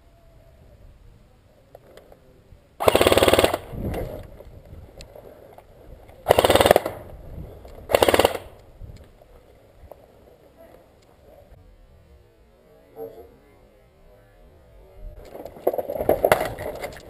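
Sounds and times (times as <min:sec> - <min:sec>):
airsoft rifle full-auto bursts: 0:02.8 - 0:03.8, 0:06.2 - 0:07.0, 0:07.9 - 0:08.6.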